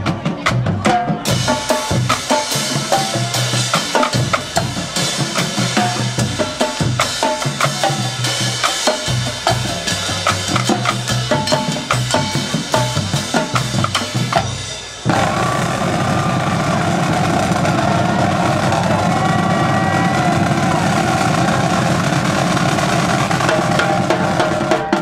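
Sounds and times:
bass drums: 0.0s - 25.0s
snare drums rattling: 15.1s - 25.0s.

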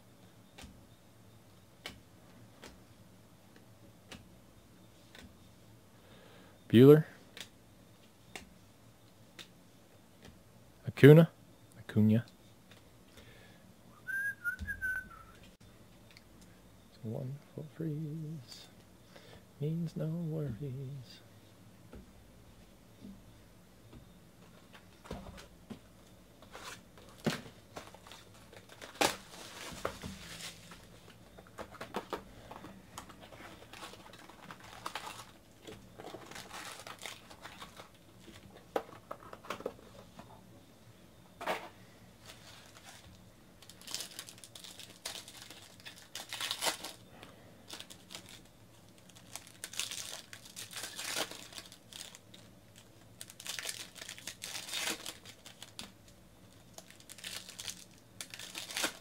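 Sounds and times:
foil wrappers crinkling and tearing: 26.5s - 38.5s, 42.2s - 59.0s.

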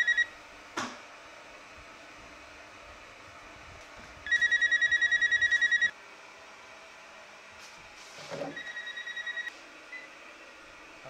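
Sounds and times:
phone handset ringing trill: 0.0s - 0.3s, 4.3s - 5.9s, 8.6s - 9.5s.

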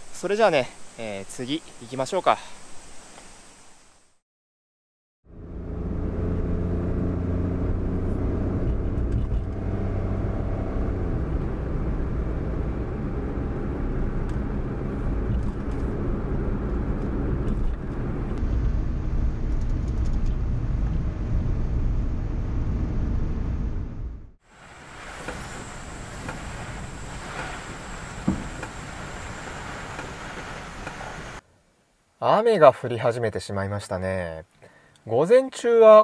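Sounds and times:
car engine and road rumble: 5.3s - 31.4s.

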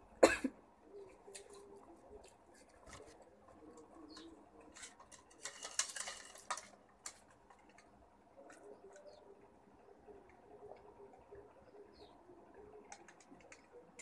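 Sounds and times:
faint clicks: 12.8s - 14.0s.

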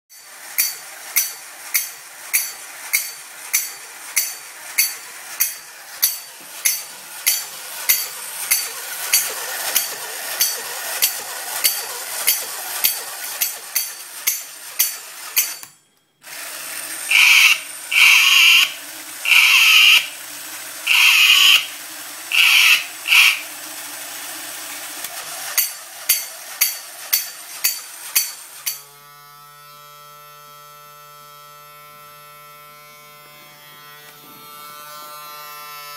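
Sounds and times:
toy cymbals clashing: 0.1s - 28.9s
toy motor whirring: 0.1s - 35.9s
high squeals: 17.0s - 20.2s, 20.9s - 23.5s.

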